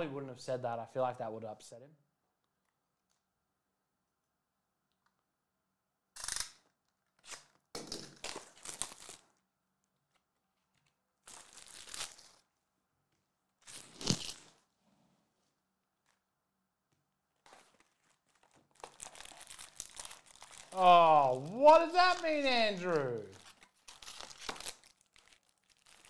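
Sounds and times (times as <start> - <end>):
plastic wrap crinkling: 8.2 - 9.4, 10.0 - 12.5, 17.3 - 26.0.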